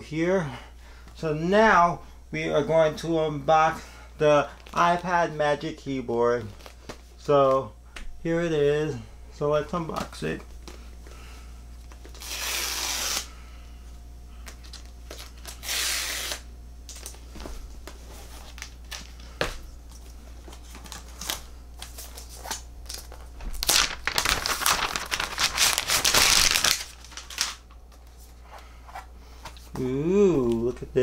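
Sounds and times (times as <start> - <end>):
packaging rustling and crinkling: 6.3 - 7.0, 14.4 - 28.3
packaging tearing: 12.0 - 13.3, 14.6 - 17.2, 20.8 - 27.7.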